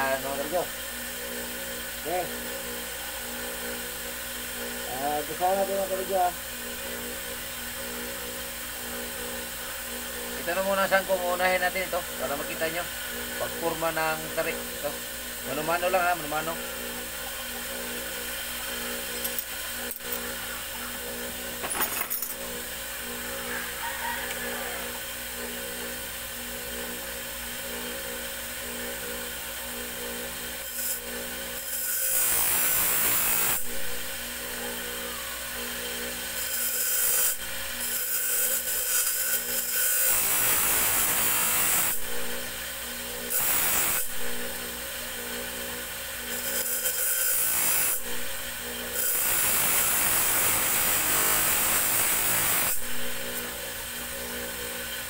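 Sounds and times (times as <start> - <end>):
grinding wheel humming: 0.0 - 55.0
blade grinding hiss: 9.4 - 25.2, 30.5 - 34.4, 35.0 - 42.6, 43.2 - 44.8, 46.2 - 53.6.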